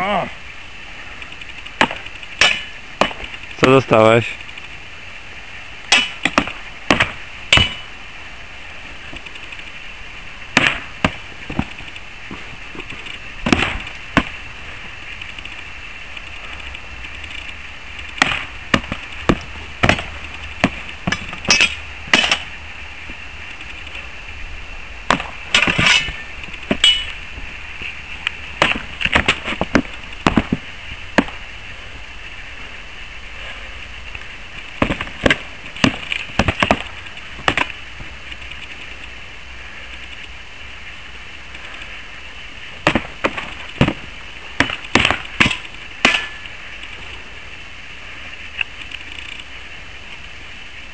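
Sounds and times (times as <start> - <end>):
swords clanging on shields: 1.8 - 3.2, 5.9 - 7.9, 21.1 - 22.5, 25.1 - 27.1.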